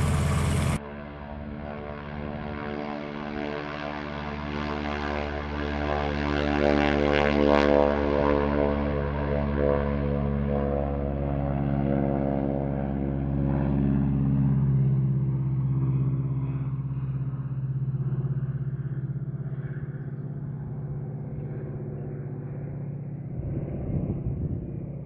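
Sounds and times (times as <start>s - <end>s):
low bumps: 0.0s - 0.8s
aircraft radial engine drone: 0.0s - 25.0s.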